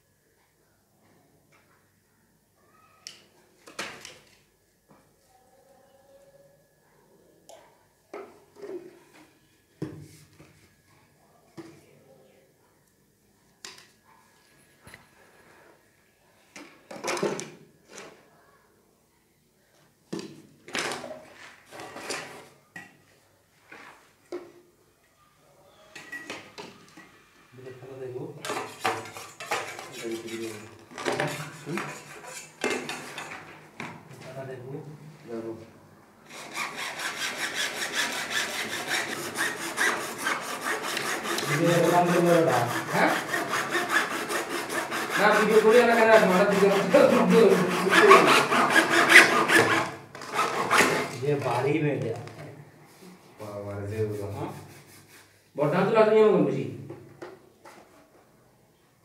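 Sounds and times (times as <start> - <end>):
hacksaw cutting plastic pipe: 28.4 - 33.4, 36.3 - 51.2.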